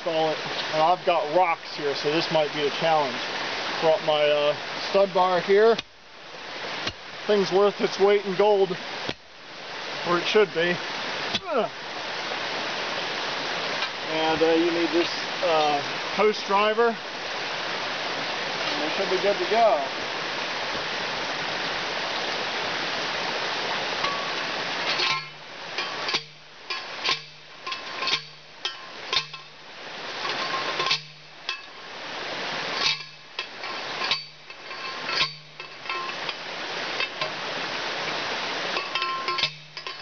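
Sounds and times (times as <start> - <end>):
creek rushing: 0.0 - 40.0
post driver clanking on steel post: 24.0 - 29.6, 30.2 - 31.8, 32.7 - 36.4, 38.7 - 40.0.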